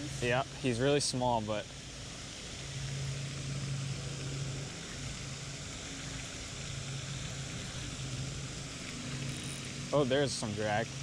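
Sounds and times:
steady hiss: 0.0s - 11.0s
fishing reel being cranked: 9.1s - 9.8s.

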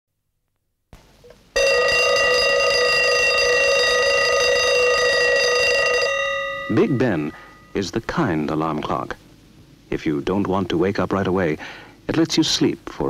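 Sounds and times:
alarm clock bell ringing: 1.6s - 7.8s.

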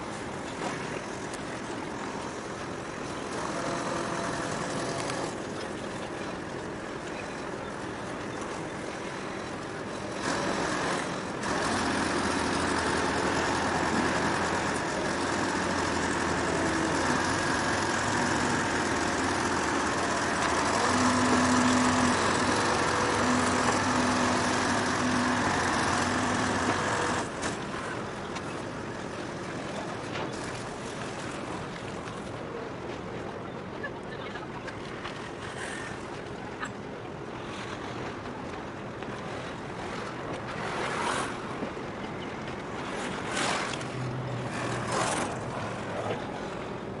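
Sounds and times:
water lapping: 0.0s - 47.0s
wind: 0.0s - 47.0s
engine humming: 10.0s - 32.0s
water splashes: 37.2s - 47.0s.

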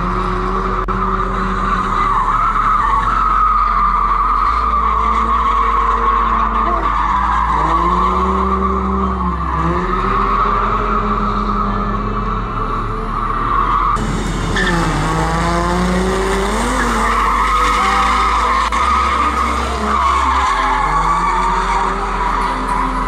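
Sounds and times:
car engine revving: 0.0s - 23.0s
tyres squealing: 13.1s - 23.0s.

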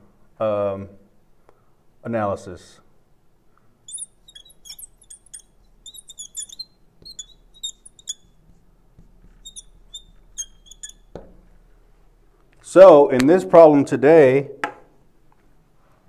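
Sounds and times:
marker squeaking on glass board: 3.9s - 11.8s.

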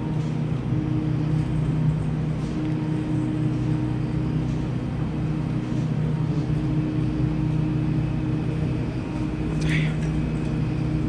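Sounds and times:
refrigerated cases humming: 0.0s - 11.0s.

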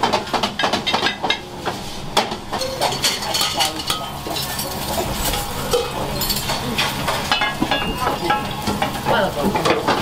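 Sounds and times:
food frying in pans: 0.0s - 10.0s
utensils and dishes clinking: 2.2s - 10.0s.

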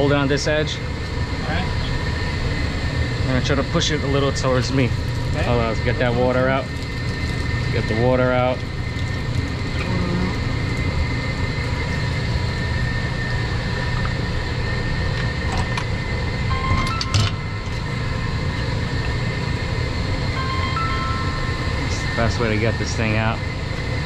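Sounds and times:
machinery drone: 0.0s - 24.0s
steady tones: 16.3s - 24.0s.

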